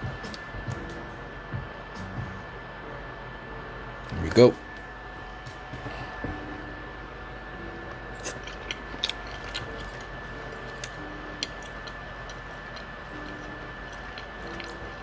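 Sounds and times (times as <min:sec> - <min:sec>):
chewing and mouth noises: 0:07.8 - 0:15.0.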